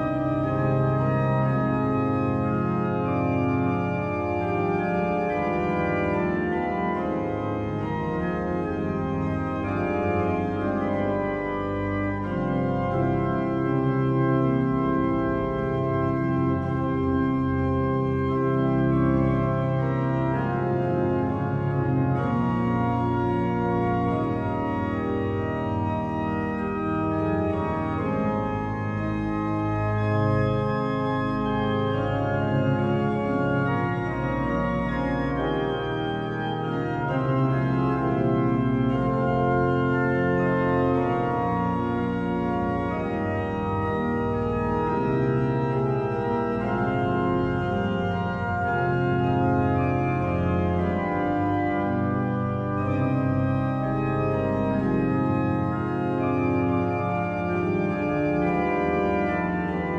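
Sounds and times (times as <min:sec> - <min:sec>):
pipe organ sustained chords: 0:00.0 - 0:59.9.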